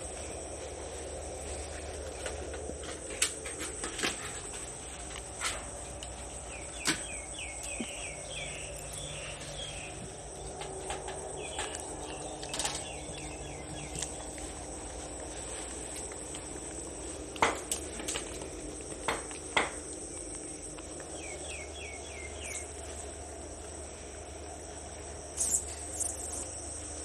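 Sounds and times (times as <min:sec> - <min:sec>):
insect drone: 0:00.0 - 0:27.0
bird chirping: 0:06.5 - 0:10.5, 0:21.1 - 0:22.7.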